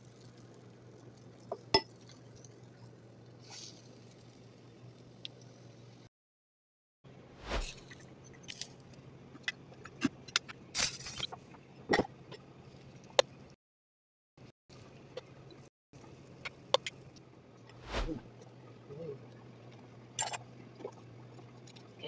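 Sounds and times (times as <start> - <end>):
brief rush: 17.8 - 18.2.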